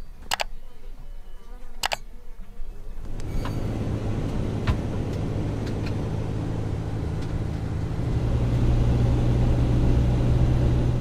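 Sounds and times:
van engine running: 3.1 - 11.0.

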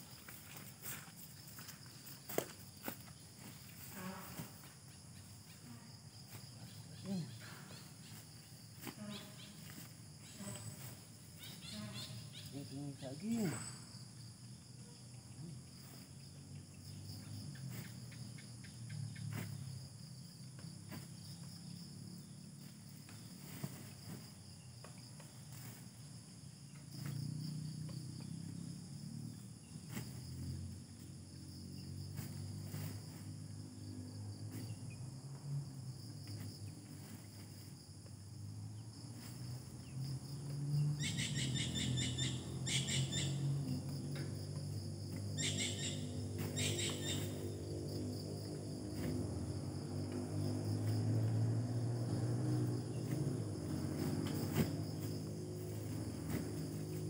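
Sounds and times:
insects chirping: 0.0 - 57.0
bird chirping: 11.4 - 14.0, 40.8 - 43.8, 45.3 - 47.6.

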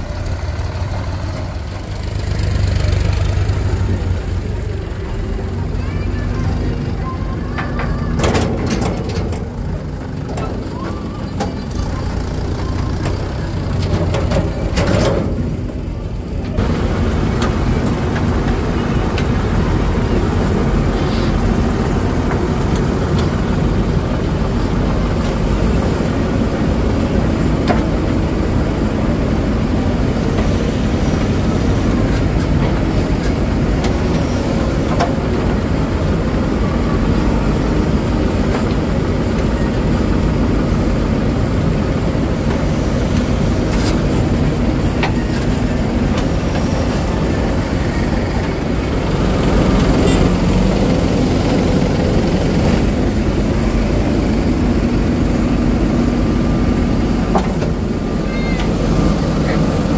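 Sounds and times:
diesel engine under load: 0.0 - 59.9
bucket and arm clanks: 7.4 - 12.0.

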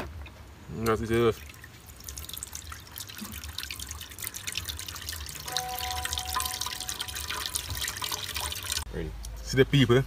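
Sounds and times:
juice dripping and trickling: 0.3 - 9.4
faint steady tone: 5.4 - 7.6.

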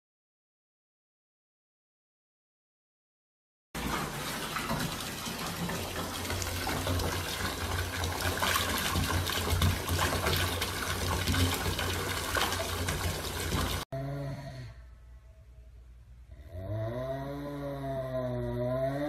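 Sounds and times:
water pouring from a tap into a bath: 3.8 - 13.9.

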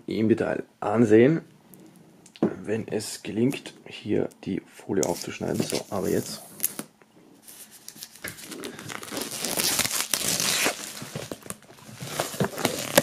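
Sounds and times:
plastic film crinkling and tearing: 5.0 - 13.0.

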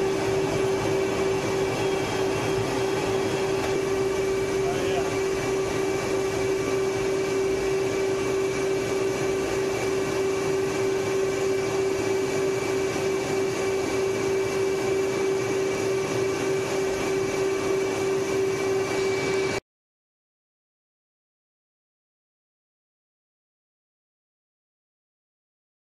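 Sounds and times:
jet engines running: 0.0 - 19.6.

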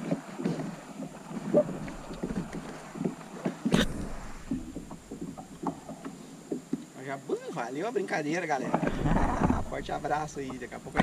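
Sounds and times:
knocks and rubs of gear: 0.0 - 6.9.

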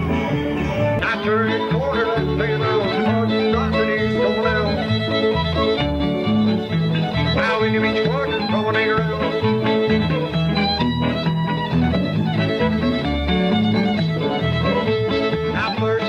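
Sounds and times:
bass line: 0.0 - 16.0
fiddle: 0.0 - 16.0
guitar: 0.0 - 16.0.

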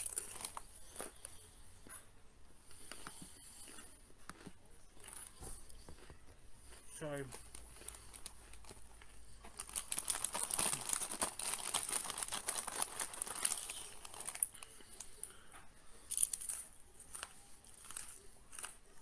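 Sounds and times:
food wrapper crinkling: 0.0 - 1.2, 6.7 - 15.3, 16.1 - 19.0.

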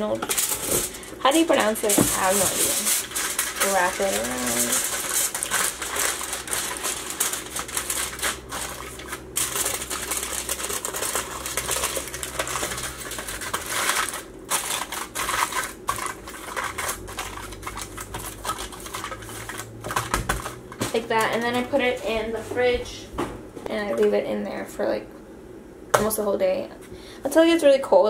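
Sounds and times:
aluminum foil crinkling: 0.0 - 22.4.

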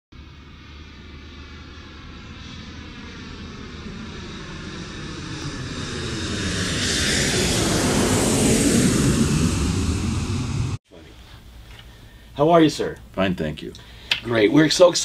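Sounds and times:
aircraft flying past: 0.2 - 10.8.

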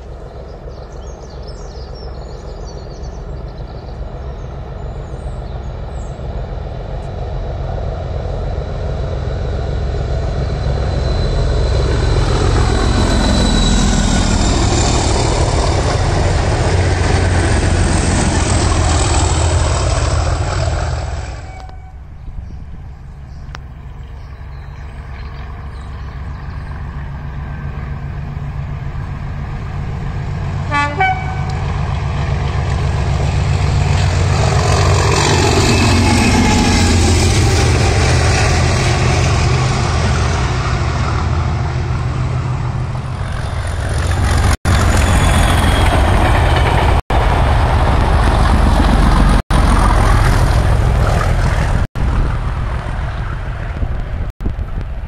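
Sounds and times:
train rumble and wheel noise: 0.0 - 55.0
windy hiss of passing train: 0.0 - 55.0
train horn toot: 21.1 - 22.2, 30.6 - 31.8.

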